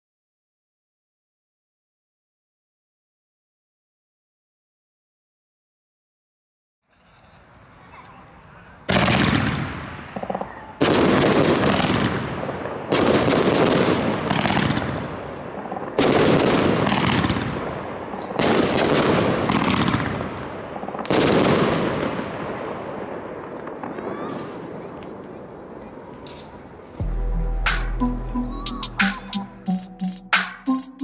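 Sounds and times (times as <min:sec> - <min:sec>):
firework volleys of sharp shots: 0:08.8 - 0:25.3.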